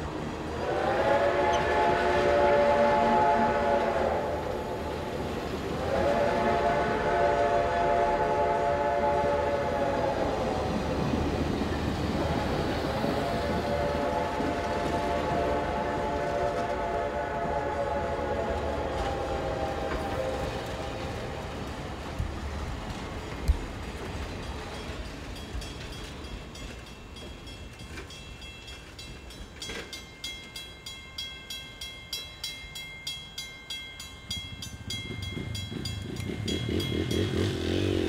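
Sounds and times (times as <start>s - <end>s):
train wheels rumbling on rails: 0.0s - 38.0s
locomotive horn chords: 0.5s - 11.1s, 12.1s - 21.8s.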